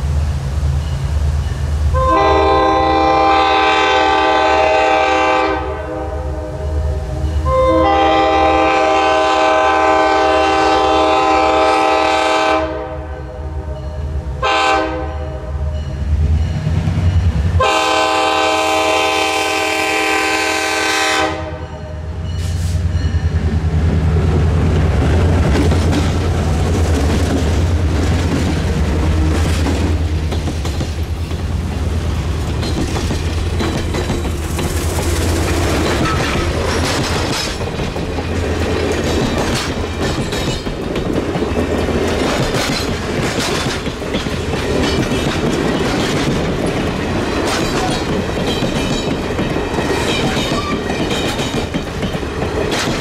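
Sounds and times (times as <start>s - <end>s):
train rumbling past: 0.0s - 53.0s
train air horn blasts: 1.9s - 15.9s, 17.6s - 22.9s
wheels clacking over rail joints: 24.7s - 53.0s.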